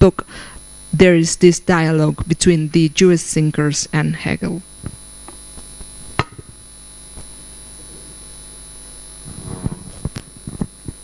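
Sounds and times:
electrical hum: 0:00.0 - 0:11.0
microphone bumps and clicks: 0:04.8 - 0:07.4, 0:09.2 - 0:11.0.

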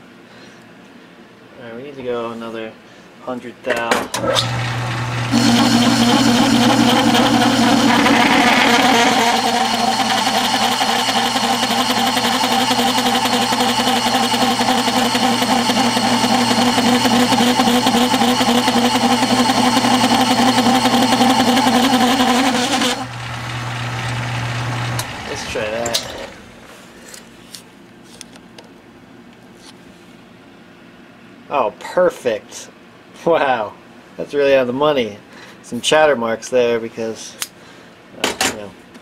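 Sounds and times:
lathe motor hum: 0:04.2 - 0:26.9
lathe tool screeching and chattering: 0:04.4 - 0:26.5.

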